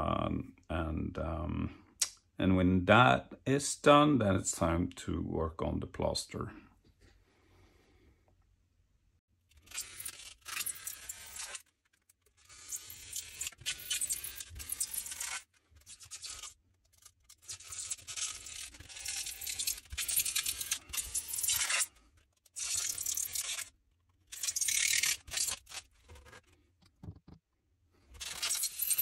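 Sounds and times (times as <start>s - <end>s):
knife scraping through styrofoam: 9.6s - 26.6s.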